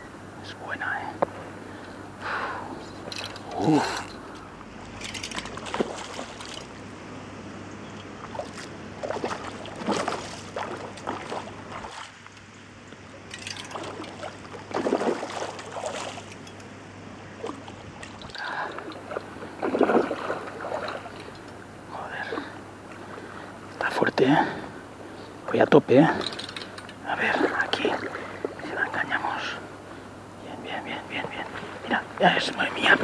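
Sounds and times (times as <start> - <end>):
shallow river flowing: 1.3 - 33.0
fish splashing at the surface: 8.2 - 12.2, 13.6 - 16.3, 17.4 - 21.3.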